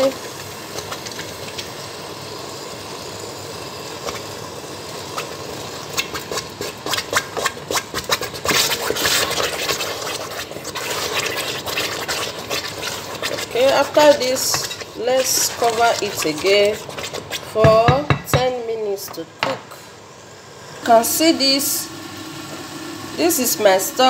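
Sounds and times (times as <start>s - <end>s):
stew popping and crackling: 0.0s - 2.0s, 3.9s - 18.5s
stew bubbling in a pot: 0.0s - 24.0s.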